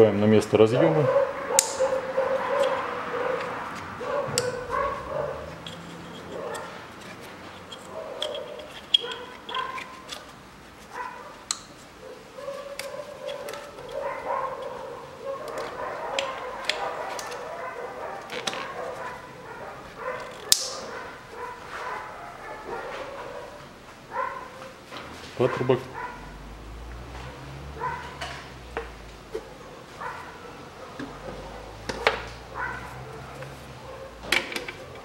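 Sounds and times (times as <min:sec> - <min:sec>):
dog whining and yipping: 0:07.9 - 0:10.1.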